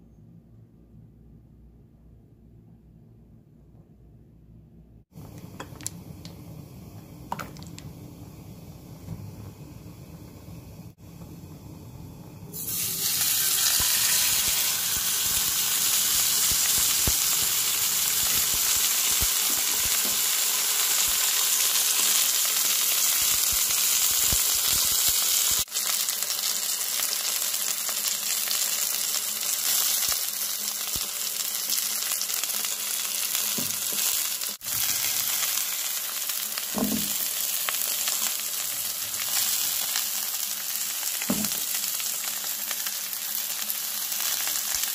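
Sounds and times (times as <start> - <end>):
steak sizzling in a frying pan: 12.6 - 44.9.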